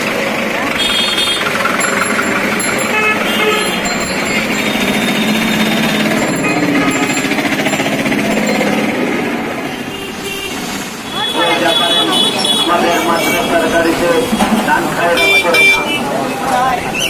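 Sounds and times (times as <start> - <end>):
engine running with pulsing beat: 0.0 - 9.8.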